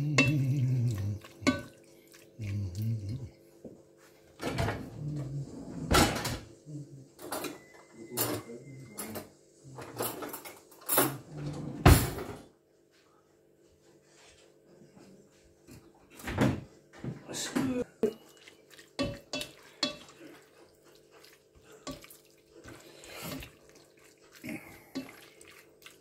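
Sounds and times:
spatula scraping pot: 0:18.1 - 0:26.0.

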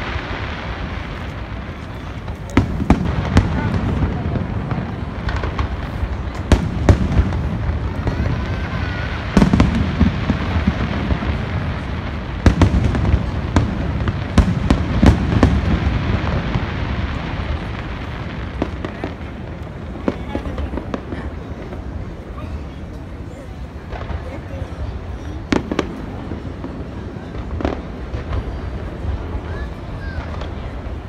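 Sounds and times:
rolling rumble of booms: 0:00.0 - 0:22.3
fireworks bangs: 0:00.0 - 0:31.0.

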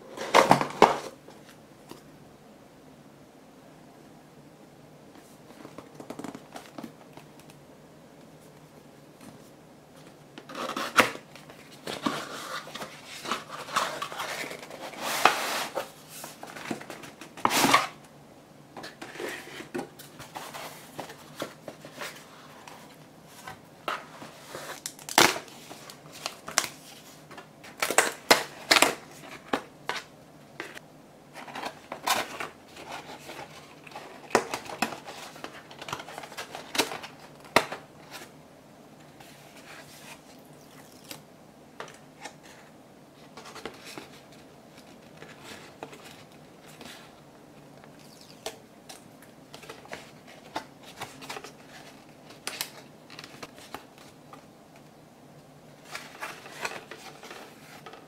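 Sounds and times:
paper and cardboard rustling: 0:09.2 - 0:18.0, 0:18.8 - 0:38.4, 0:39.2 - 0:41.2, 0:42.2 - 0:47.2, 0:49.5 - 0:54.4, 0:55.8 - 0:58.0.

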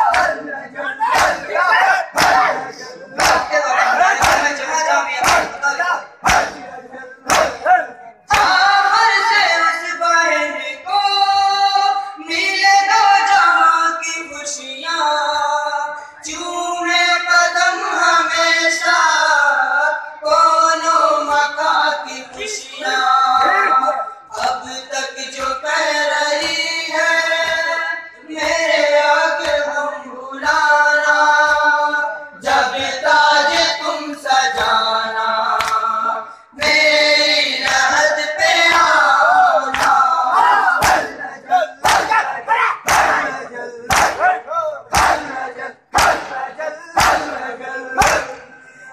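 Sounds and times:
men beating their chests: 0:00.0 - 0:08.7, 0:36.6 - 0:48.4
men singing lament into microphone: 0:00.0 - 0:48.9.

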